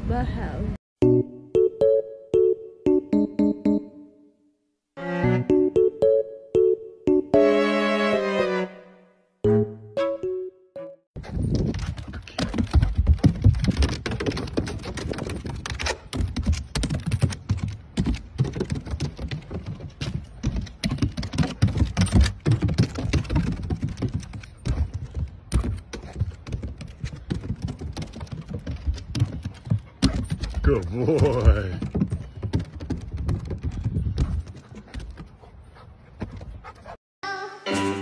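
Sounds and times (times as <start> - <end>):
dog paws thumping on ramps: 11.2 - 37.0.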